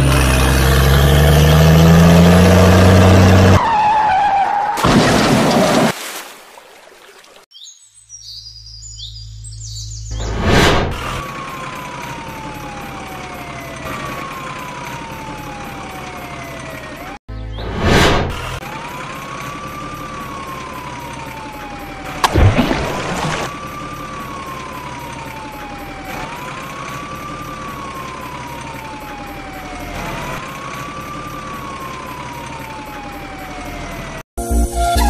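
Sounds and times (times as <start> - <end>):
siren wailing: 11.0 - 17.2, 18.6 - 34.2.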